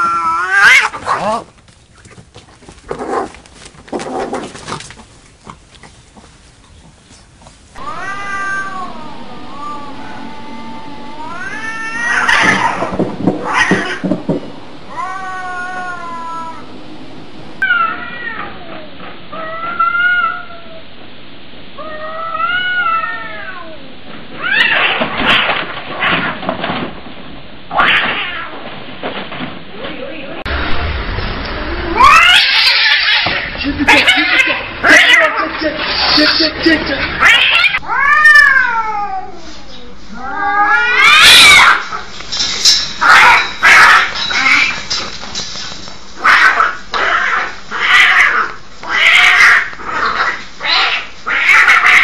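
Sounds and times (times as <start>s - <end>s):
cats yowling: 0.0s - 1.4s, 7.8s - 16.8s, 17.6s - 20.8s, 21.8s - 25.1s, 31.9s - 35.5s, 37.2s - 39.4s, 40.1s - 42.1s, 43.0s - 44.8s, 46.2s - 52.0s.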